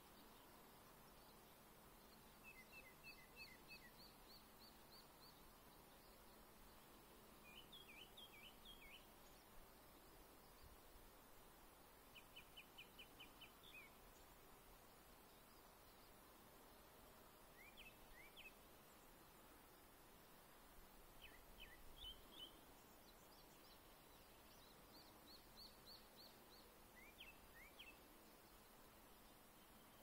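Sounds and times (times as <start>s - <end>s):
songbird whistling song: 2.1s - 5.4s, 7.4s - 9.1s, 12.1s - 14.2s, 17.5s - 18.6s, 21.2s - 28.0s.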